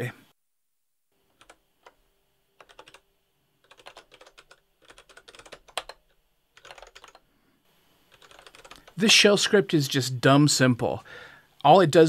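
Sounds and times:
computer keyboard typing: 0:01.3 - 0:02.0, 0:02.6 - 0:03.0, 0:03.6 - 0:07.2, 0:08.1 - 0:09.0.

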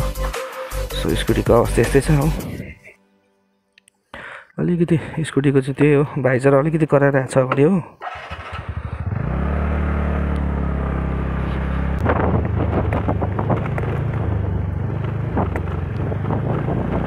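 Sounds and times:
scooter engine pulling away: 0:08.0 - 0:17.0
visor rattling: 0:12.0 - 0:16.6.

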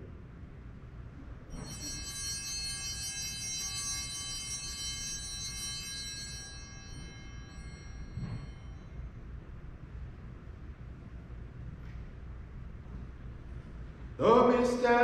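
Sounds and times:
altar bells ringing: 0:01.4 - 0:10.2.

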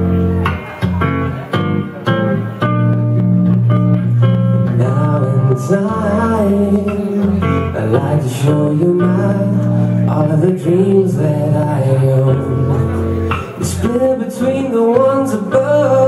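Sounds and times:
lap guitar playing: 0:00.0 - 0:16.0
man singing: 0:04.6 - 0:16.0.

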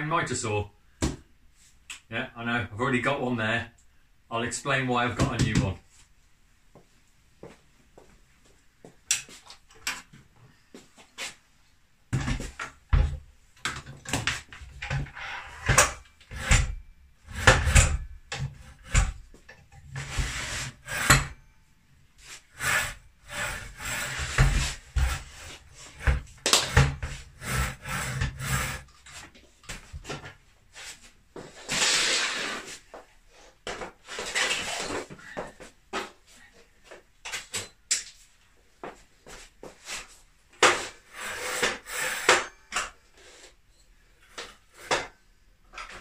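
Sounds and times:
scraping noise: 0:19.9 - 0:21.4, 0:22.2 - 0:28.8.

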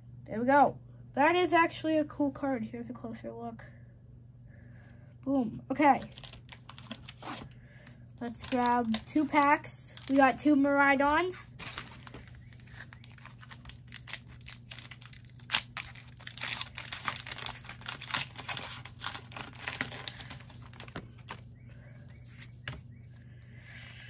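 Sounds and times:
foil wrapper tearing and crinkling: 0:05.9 - 0:07.6, 0:08.2 - 0:21.4.

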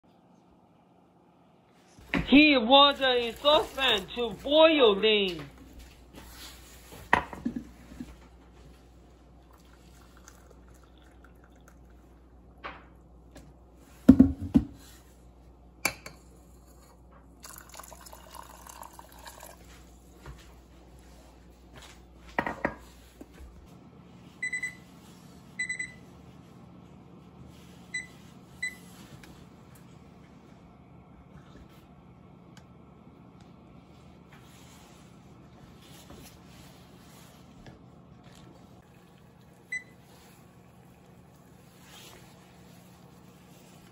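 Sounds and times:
water pouring into saucepan: 0:09.4 - 0:12.2, 0:17.4 - 0:19.8.

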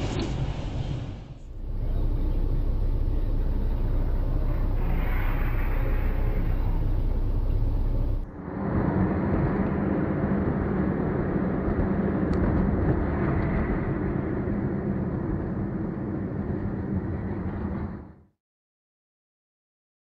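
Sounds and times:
car engine rumble: 0:01.5 - 0:08.3
road noise: 0:01.5 - 0:13.4.

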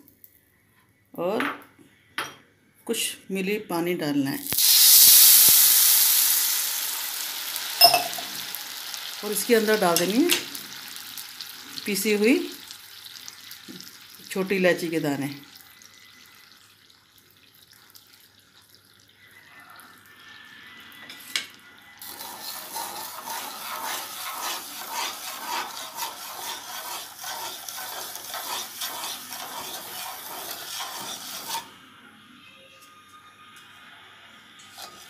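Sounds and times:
spatula scraping sugar in pan: 0:22.0 - 0:31.8, 0:34.7 - 0:35.0.

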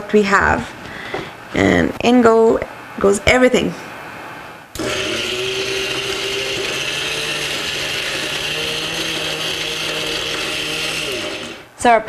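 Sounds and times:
electric blender grinding paste: 0:04.8 - 0:11.7.

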